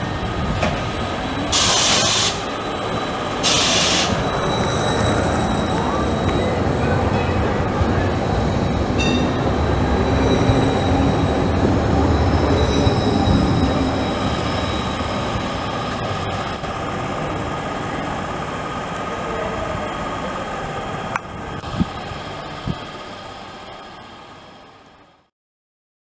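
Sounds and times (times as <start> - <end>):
tram wheel squeal: 0.0 - 21.0
tram rumbling past: 0.0 - 25.3
trams whining: 0.0 - 25.3.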